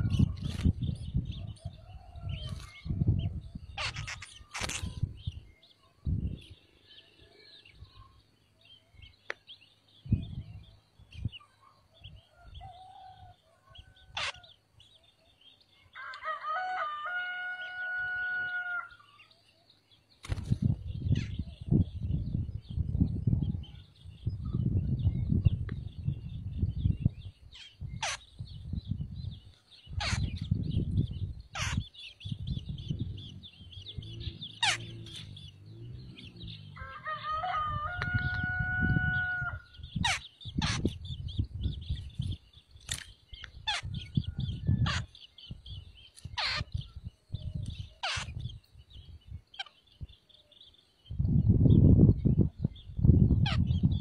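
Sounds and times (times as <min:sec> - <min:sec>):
high bird chirps: 0:00.0 - 0:06.2, 0:25.5 - 0:54.0
wind buffeting microphone: 0:00.0 - 0:06.6, 0:09.9 - 0:11.4, 0:20.2 - 0:54.0
rooster crowing: 0:16.0 - 0:19.1, 0:36.7 - 0:39.8.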